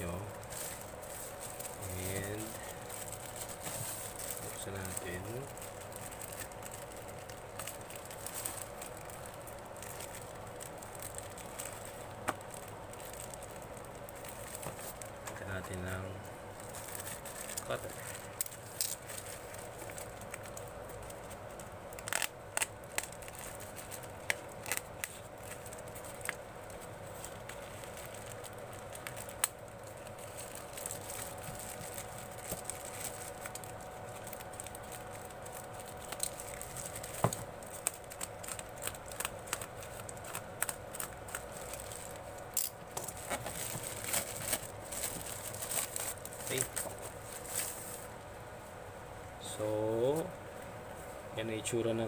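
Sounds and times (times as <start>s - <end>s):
plastic wrapping crinkling and tearing: 0.0s - 48.2s.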